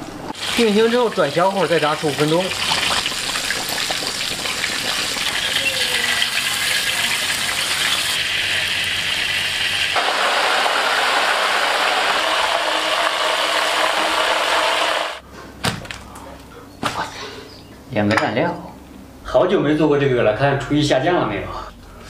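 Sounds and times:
chicken deep-frying in oil: 0:00.0 - 0:15.2.

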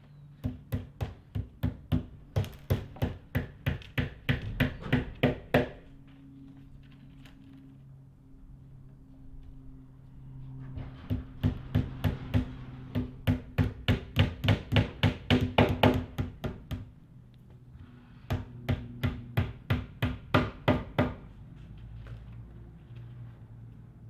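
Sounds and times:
hammer tapping nails into fiberboard: 0:00.4 - 0:05.8, 0:12.9 - 0:16.9, 0:18.3 - 0:21.2.

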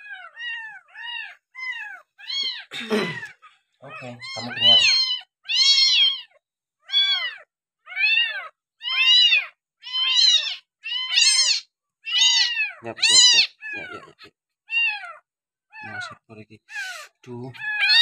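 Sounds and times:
kitten meowing: 0:00.0 - 0:16.2, 0:16.8 - 0:18.0.

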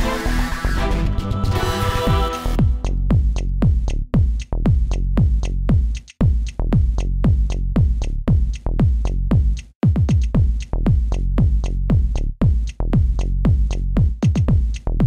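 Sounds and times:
electronic dance music: 0:00.0 - 0:03.2
deep bass line: 0:00.0 - 0:09.7, 0:10.3 - 0:15.0
kick drum: 0:02.1 - 0:15.0
hi-hat ticks: 0:02.6 - 0:15.0.

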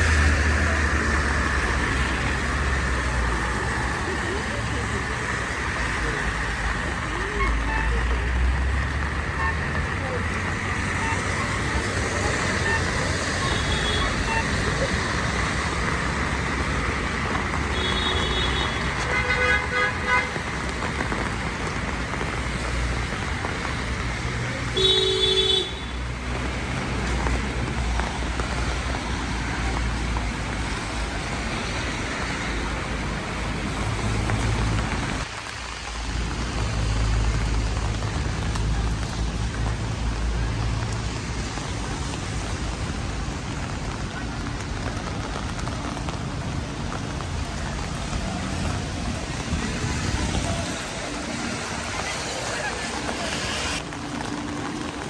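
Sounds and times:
engines rumbling: 0:00.0 - 0:55.0
rain and tyres hissing: 0:00.0 - 0:55.0
car horns: 0:17.7 - 0:20.4, 0:24.8 - 0:26.0.

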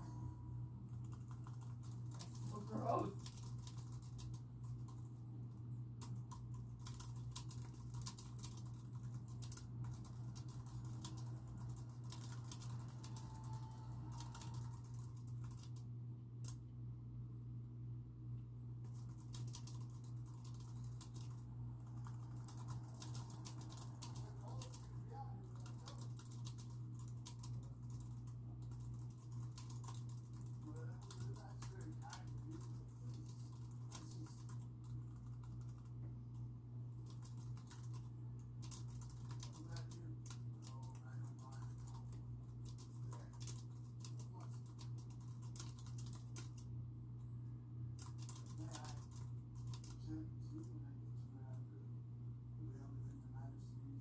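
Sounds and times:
muffled television dialogue: 0:00.0 - 0:16.7, 0:18.8 - 0:54.0
steady low hum: 0:00.0 - 0:54.0
typing on computer keyboard: 0:01.0 - 0:02.6, 0:03.2 - 0:05.0, 0:06.0 - 0:16.6, 0:18.8 - 0:35.9, 0:37.0 - 0:46.7, 0:48.0 - 0:50.0.

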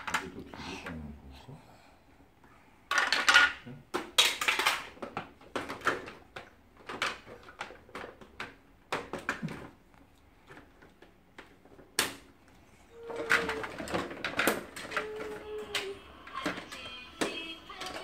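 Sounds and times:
plastic toy pieces knocking: 0:02.9 - 0:09.8, 0:13.0 - 0:18.0.

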